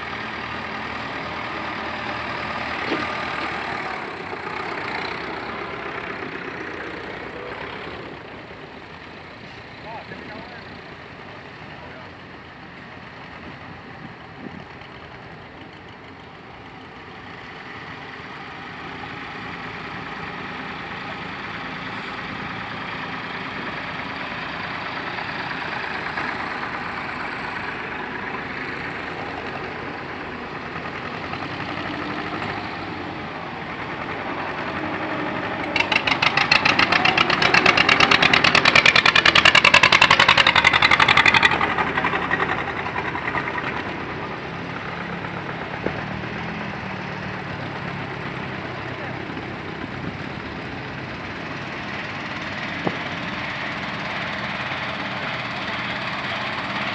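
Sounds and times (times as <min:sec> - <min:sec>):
mini tractor engine: 0:00.0 - 0:56.9
vehicle engine passing: 0:17.2 - 0:56.9.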